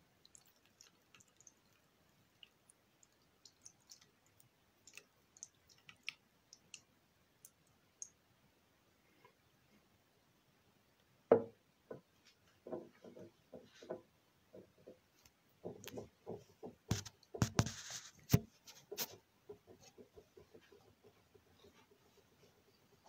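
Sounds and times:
objects knocking on hard surface: 0:11.3 - 0:12.0, 0:12.6 - 0:15.0.

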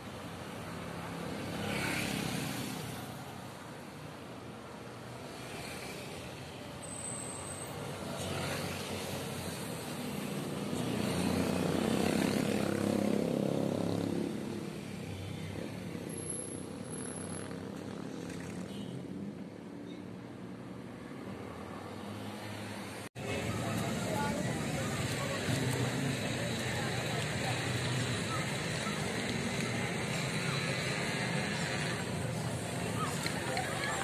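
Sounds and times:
street traffic: 0:00.0 - 0:34.0
motorcycle passing close: 0:10.7 - 0:14.6.

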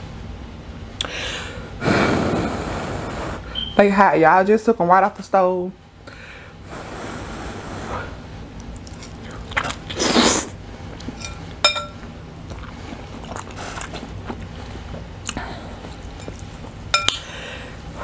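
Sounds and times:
chewing: 0:08.6 - 0:11.3, 0:12.4 - 0:16.6
noodle slurp: 0:08.8 - 0:10.6
fork clinking on glass bowl: 0:11.2 - 0:12.0, 0:16.2 - 0:17.2.

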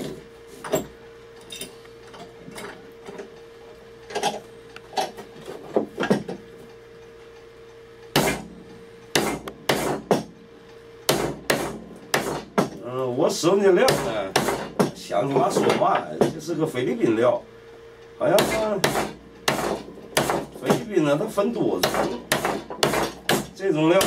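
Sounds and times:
chisel struck with hatchet: 0:08.1 - 0:08.5, 0:09.1 - 0:10.4, 0:11.1 - 0:12.8, 0:13.8 - 0:15.0, 0:18.3 - 0:20.9, 0:21.8 - 0:24.0.

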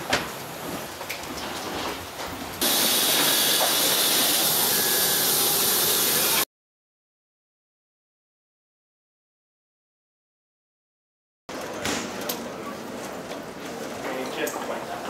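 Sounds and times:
jet engine hiss and whine: 0:02.6 - 0:06.5.

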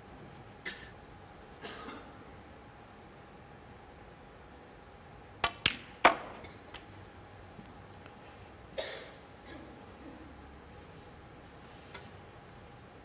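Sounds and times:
snooker balls clacking: 0:05.4 - 0:06.9.

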